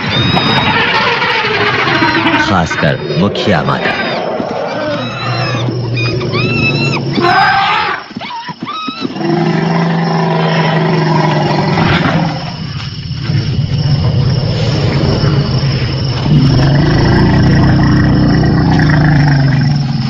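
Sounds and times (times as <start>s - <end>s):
elephant trumpeting: 0.0s - 8.1s
elephant low roaring calls: 14.0s - 20.0s.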